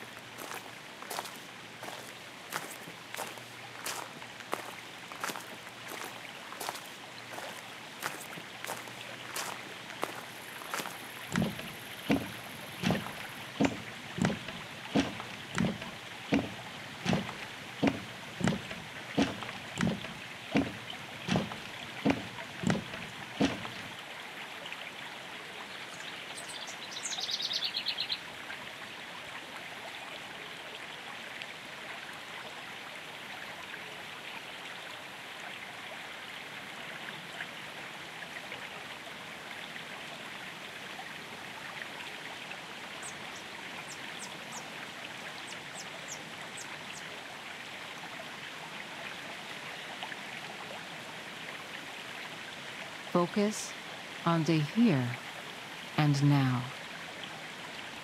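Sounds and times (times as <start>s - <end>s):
stream flowing: 0.0s - 58.0s
birdsong: 25.7s - 28.2s, 43.0s - 44.8s.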